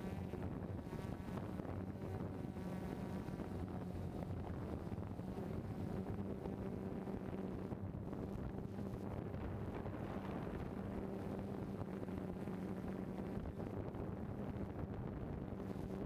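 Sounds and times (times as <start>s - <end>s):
drone propellers humming: 0.0s - 16.0s
wind buffeting microphone: 0.1s - 16.0s.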